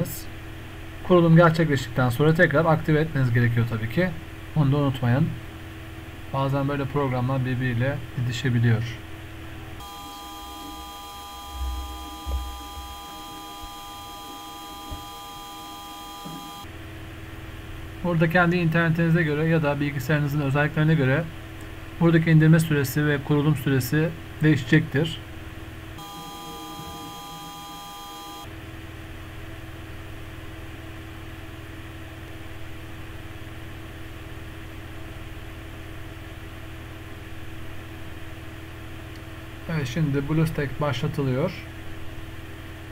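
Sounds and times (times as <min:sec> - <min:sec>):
low hum and hiss: 0:00.0 - 0:42.9
electronic hum of high tones: 0:09.7 - 0:17.0, 0:26.0 - 0:28.7.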